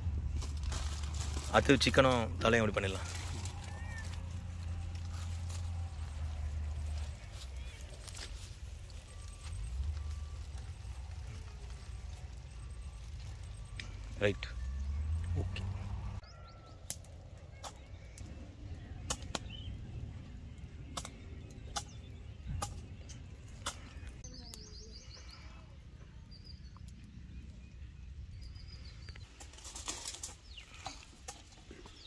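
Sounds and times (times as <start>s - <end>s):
steady low rumble: 0.0s - 16.2s, 17.1s - 24.3s.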